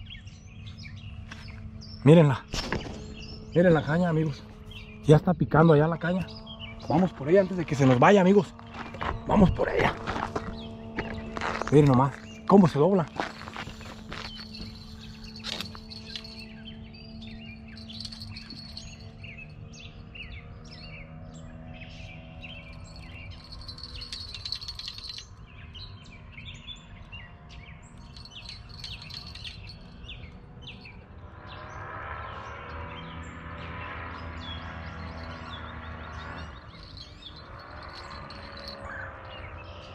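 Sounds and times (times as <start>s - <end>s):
steady low hum: 0.0s - 31.3s
songbirds singing and chirping: 0.0s - 39.9s.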